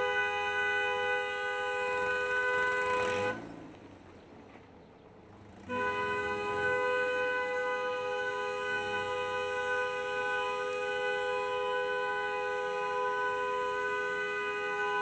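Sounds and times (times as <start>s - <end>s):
two-note car horn blast: 0.0s - 3.6s, 5.6s - 15.0s.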